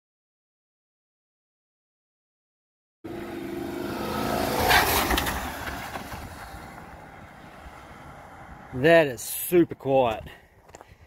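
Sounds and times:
van driving past: 3.1s - 9.1s.

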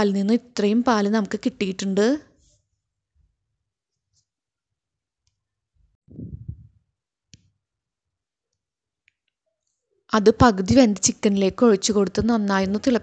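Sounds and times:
low muffled thump: 6.1s - 6.8s.

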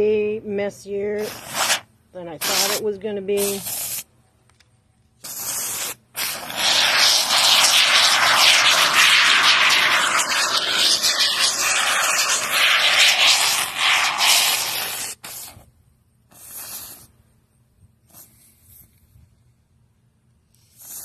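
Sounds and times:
spray foam can hissing: 1.2s - 1.8s, 2.4s - 2.8s, 3.4s - 4.1s, 5.2s - 15.6s, 16.3s - 17.1s, 20.7s - 21.0s.

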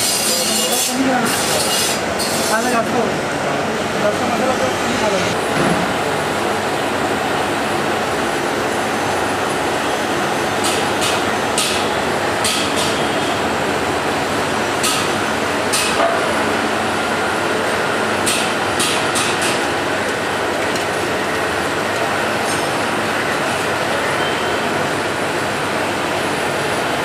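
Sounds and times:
workshop noise: 0.0s - 27.0s.

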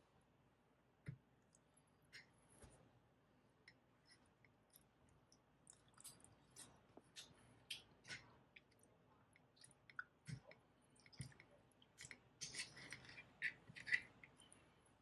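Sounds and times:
soft wet sounds: 1.0s - 15.0s.

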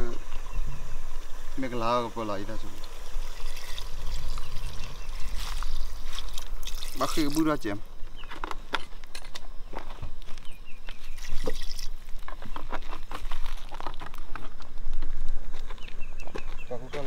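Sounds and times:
water pouring into pot: 2.8s - 7.6s, 11.2s - 12.0s.

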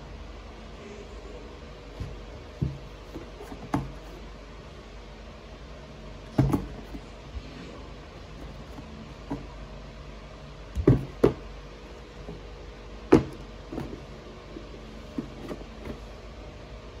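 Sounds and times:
cardboard box knocks and taps: 2.0s - 4.2s, 6.3s - 7.0s, 10.8s - 11.5s, 13.1s - 14.1s.

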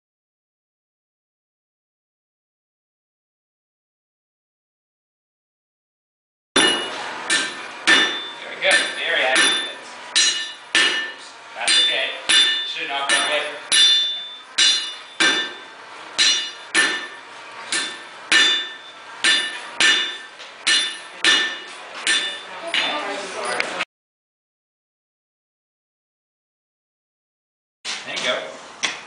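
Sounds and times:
hammer striking steel on anvil: 6.6s - 23.1s.

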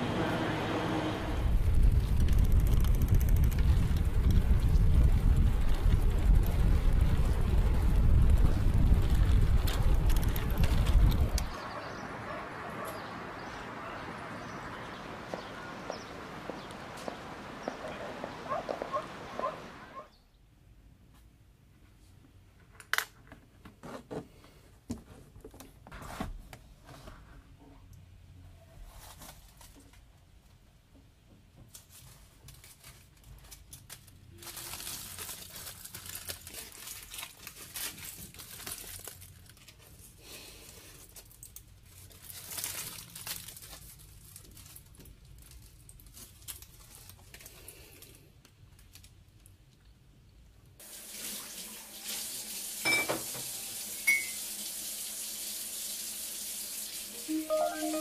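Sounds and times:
rustling: 28.7s - 30.1s
tap water running into sink: 50.9s - 56.9s.

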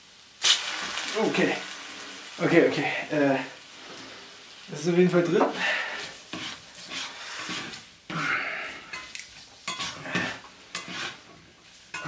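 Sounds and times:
spatula scraping frying pan: 5.5s - 12.0s.

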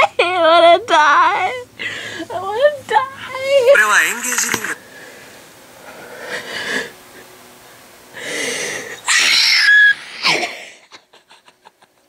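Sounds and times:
person screaming and squealing: 9.0s - 10.8s.

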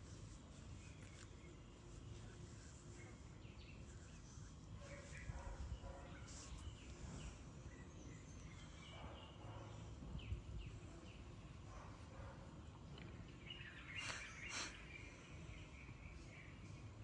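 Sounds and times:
faint bird chirps: 0.0s - 12.0s, 13.0s - 17.0s.

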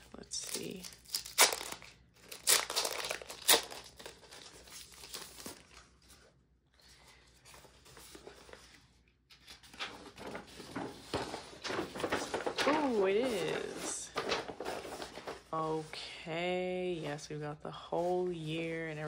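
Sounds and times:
plastic wrapping crinkling: 0.0s - 6.3s, 9.6s - 15.6s
paper rustling: 0.0s - 17.1s.

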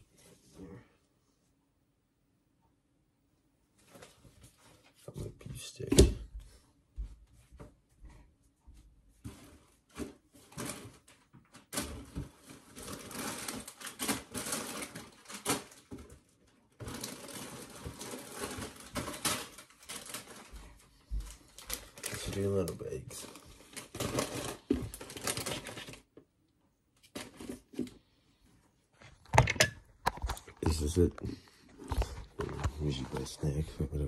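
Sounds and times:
plastic packaging crinkling: 10.4s - 26.1s.

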